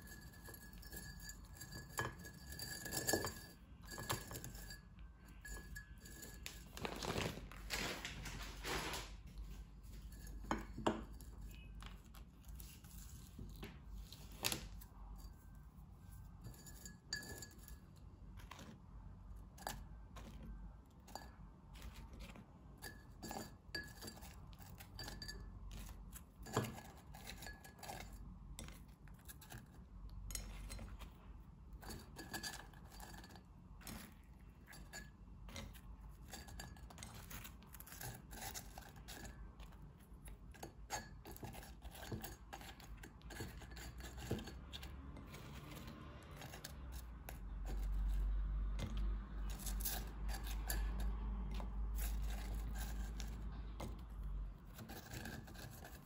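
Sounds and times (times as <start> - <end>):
food clinking in ceramic pot: 0.0 - 7.3, 19.6 - 31.0.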